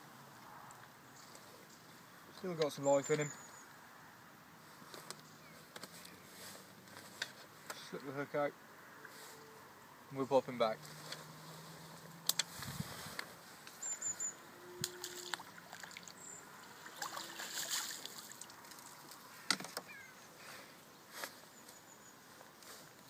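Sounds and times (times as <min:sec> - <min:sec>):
water sloshing: 0:14.8 - 0:19.0.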